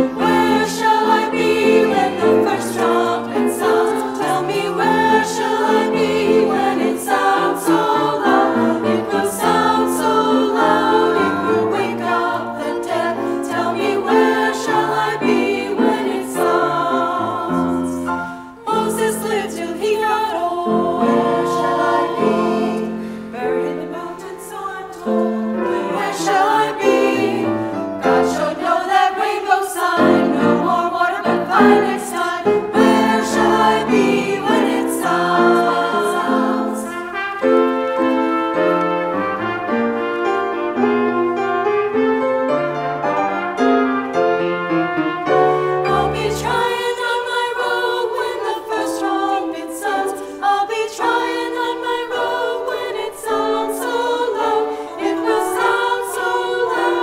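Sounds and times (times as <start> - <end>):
women's chorus singing: 0.0 - 38.8, 45.7 - 57.0.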